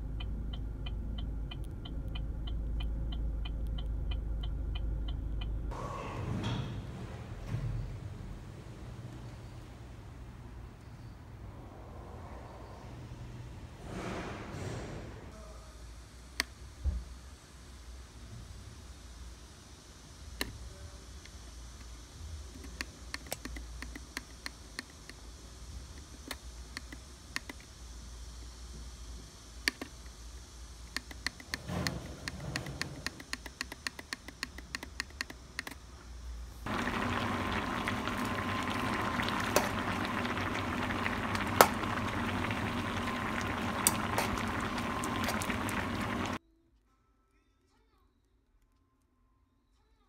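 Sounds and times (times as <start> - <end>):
water boiling and bubbling: 36.6 - 46.4.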